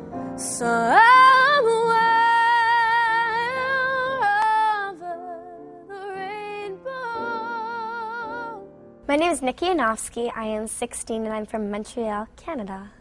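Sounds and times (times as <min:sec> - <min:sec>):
grand piano accompaniment: 0:00.0 - 0:09.1
woman singing jazz ballad: 0:00.4 - 0:08.6.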